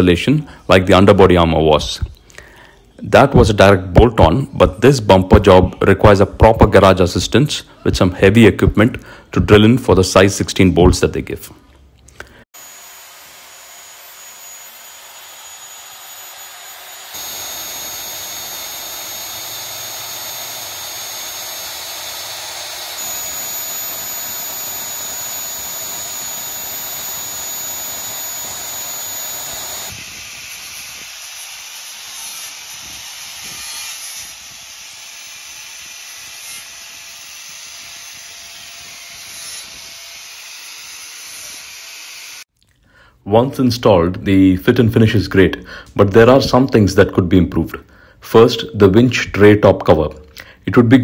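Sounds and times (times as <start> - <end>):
electric drill boring through steel: 12.4 - 42.5.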